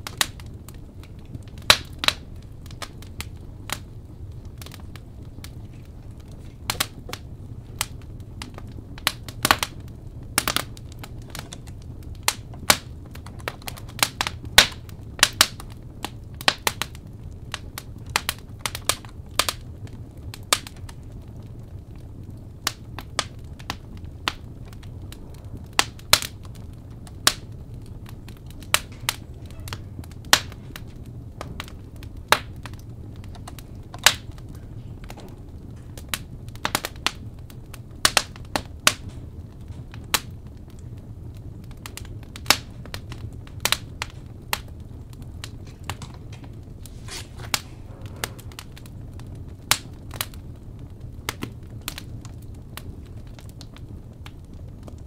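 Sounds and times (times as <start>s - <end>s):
firewood crackling and popping: 0.0s - 55.0s
low steady rumble: 0.0s - 55.0s.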